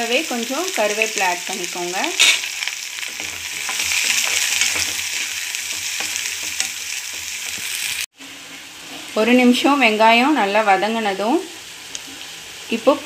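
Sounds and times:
onions sizzling in hot oil: 0.0s - 13.0s
ladle tapping and scraping pan: 2.2s - 8.0s.

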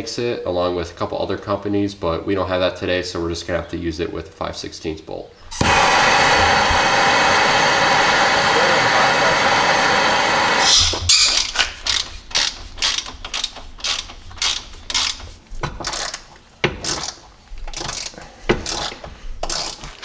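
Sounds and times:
ratchet and socket clicking: 11.1s - 20.0s.

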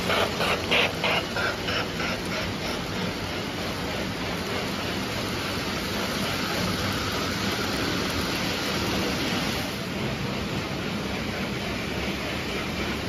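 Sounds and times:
toy train wheels on metal rails: 0.0s - 13.0s.

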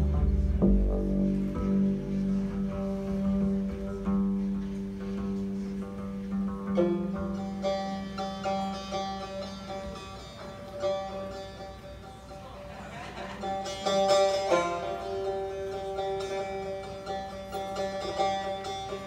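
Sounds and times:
held low note: 0.0s - 12.6s
plucked lute notes: 0.0s - 19.0s.

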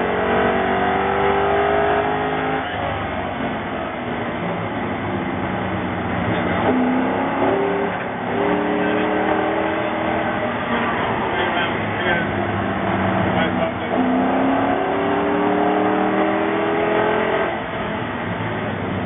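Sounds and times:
race car engine accelerating: 0.0s - 19.0s.

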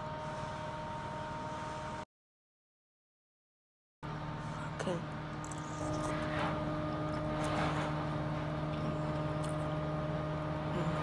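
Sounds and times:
motor hum: 4.0s - 11.0s.

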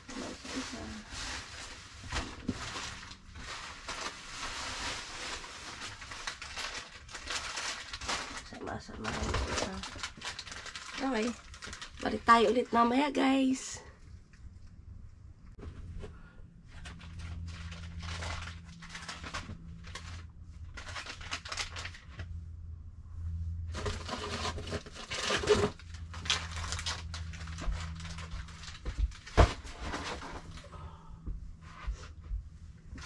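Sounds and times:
bags and boxes rustling: 0.0s - 13.5s, 23.7s - 30.7s
low steady hum: 0.0s - 33.0s.

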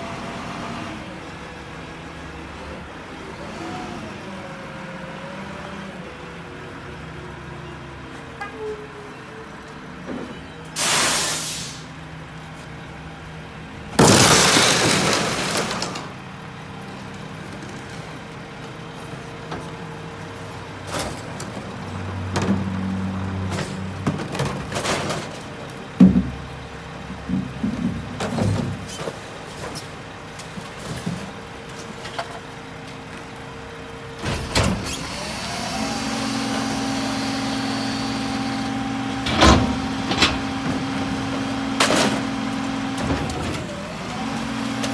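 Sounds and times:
air brake hiss: 10.8s - 11.9s
garbage truck engine idling: 11.8s - 44.9s
bins clanking and clattering: 14.0s - 16.2s, 23.4s - 26.5s, 27.1s - 32.5s, 39.2s - 43.7s.

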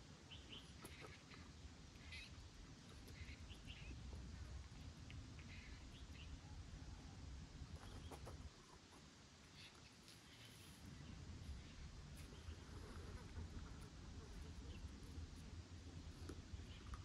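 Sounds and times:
faint bird chirps: 0.0s - 8.8s, 9.4s - 17.0s.

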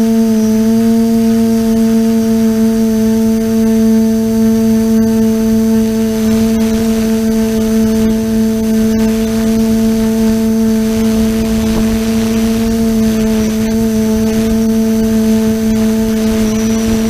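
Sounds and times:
drone motors and propellers droning: 0.0s - 17.0s
low rumble: 6.0s - 17.0s.

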